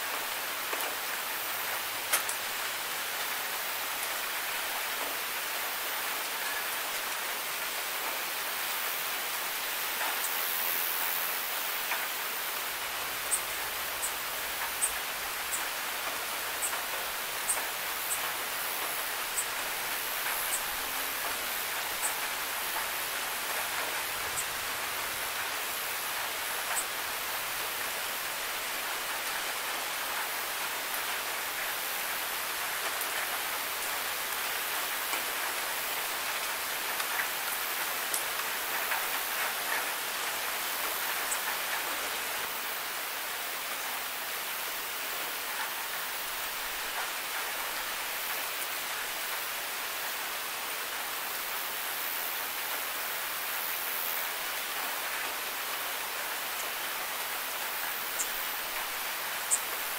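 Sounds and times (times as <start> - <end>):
steady rain falling: 0.0 - 59.9
rain drop ticks: 1.7 - 2.5, 13.2 - 25.5, 26.5 - 26.9, 35.0 - 40.2.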